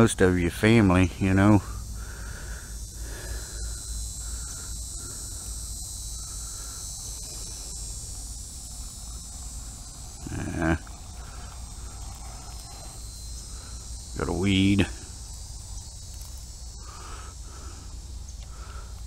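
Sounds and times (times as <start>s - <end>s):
insects chorus: 0.0s - 19.0s
man humming: 10.1s - 11.4s.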